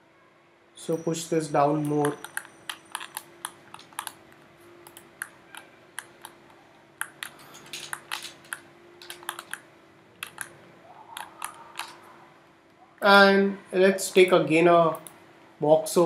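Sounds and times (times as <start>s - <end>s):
faint steady hum: 0.0s - 16.0s
keyboard and mouse clicking: 1.8s - 12.1s.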